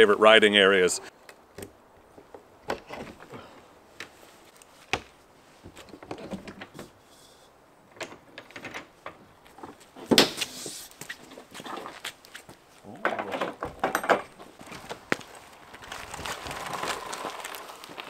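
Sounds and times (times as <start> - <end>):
metal latch clicks and knocks: 13.0 - 14.3.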